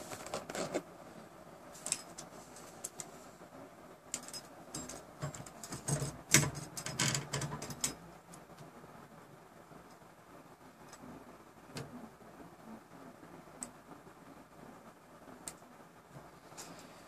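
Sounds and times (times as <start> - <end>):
small clicks and metallic rattles: 4.1 - 8.4.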